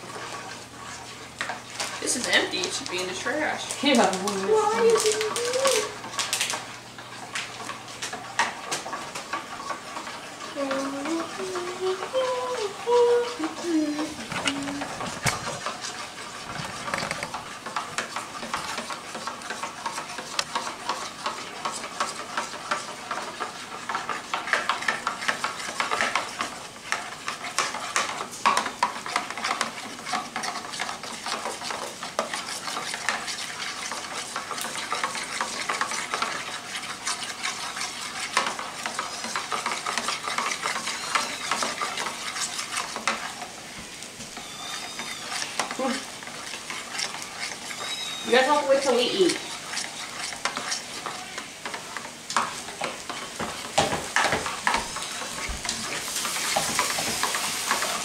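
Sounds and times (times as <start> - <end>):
utensil scraping glass bowl: 29.1 - 43.4, 44.4 - 51.8.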